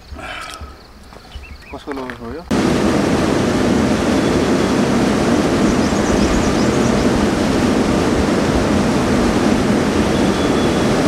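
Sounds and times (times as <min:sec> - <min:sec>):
stream and waterfall rushing: 0:02.5 - 0:11.0.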